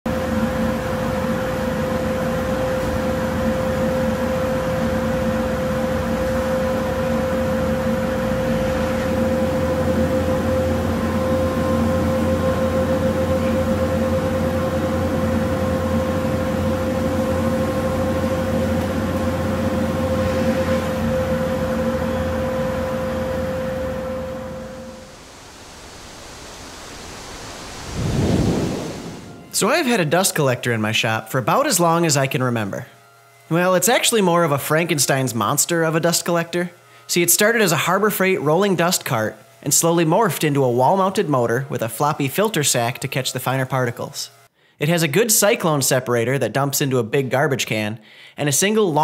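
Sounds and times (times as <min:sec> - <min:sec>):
dust collector roaring and whining: 0:00.1 - 0:30.0.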